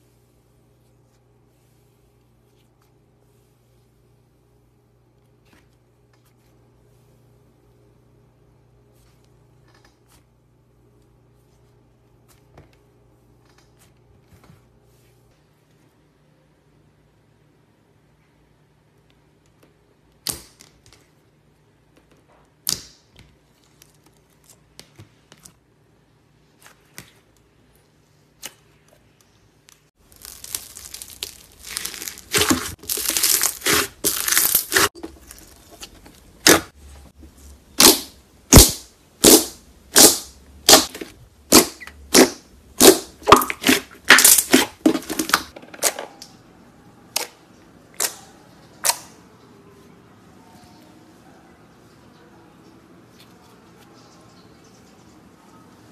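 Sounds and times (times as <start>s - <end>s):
hands squishing slime: 30.0s - 35.8s.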